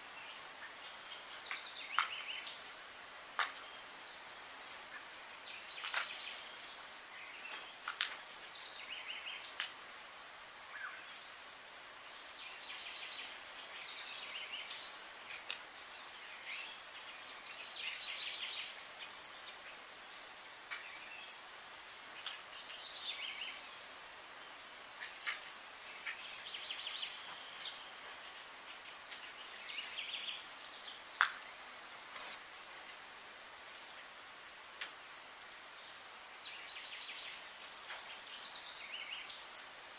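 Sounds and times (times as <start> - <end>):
insects droning: 0.0 - 39.9.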